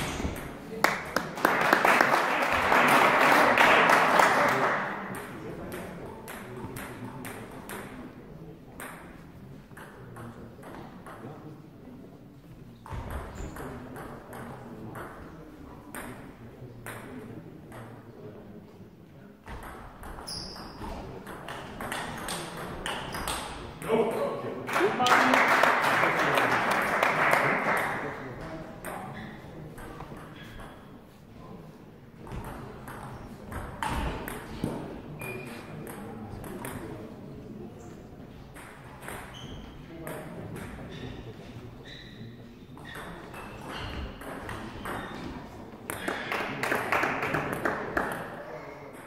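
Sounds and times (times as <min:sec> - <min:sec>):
spectators clapping: 0:00.7 - 0:05.1, 0:24.6 - 0:28.3, 0:46.0 - 0:48.3
table tennis ball pinging: 0:19.5 - 0:23.6, 0:42.8 - 0:45.3.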